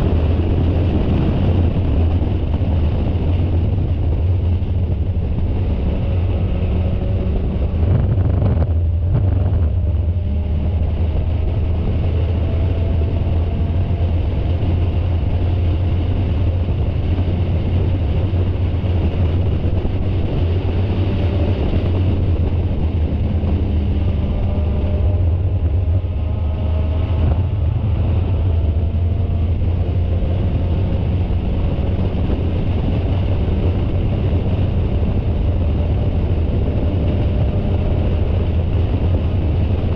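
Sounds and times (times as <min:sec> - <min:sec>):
race car engine running hard: 0:00.0 - 0:39.9
wind buffeting microphone: 0:00.0 - 0:39.9.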